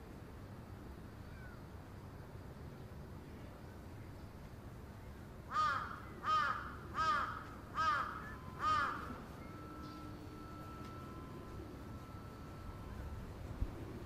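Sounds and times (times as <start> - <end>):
faint background noise: 0.0 - 14.0
crow cawing: 5.5 - 9.2.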